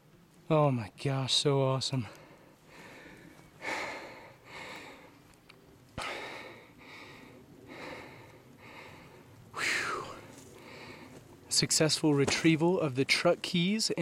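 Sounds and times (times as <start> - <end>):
person breathing hard: 2.1 - 5.2, 6.0 - 11.2.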